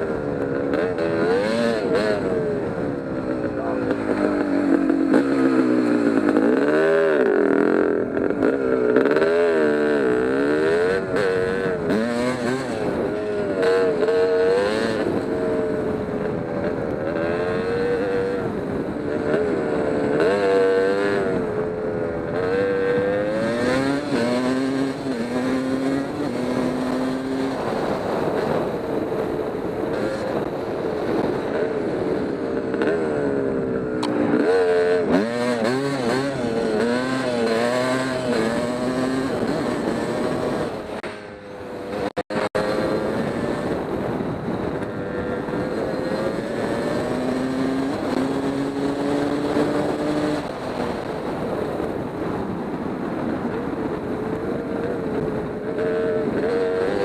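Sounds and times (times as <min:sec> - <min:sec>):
dirt bike engine revving: 0:00.0 - 0:52.5.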